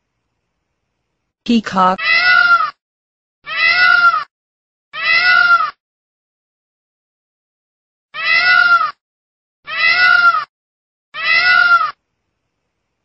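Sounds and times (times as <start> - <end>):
peacock calling: 2.0 - 2.8, 3.5 - 4.3, 5.0 - 5.8, 8.2 - 9.0, 9.7 - 10.5, 11.2 - 12.0.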